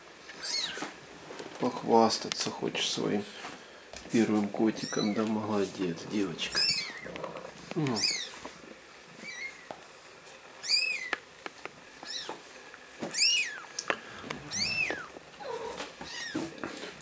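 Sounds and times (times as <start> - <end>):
kitten mewing: 13.1 - 16.6.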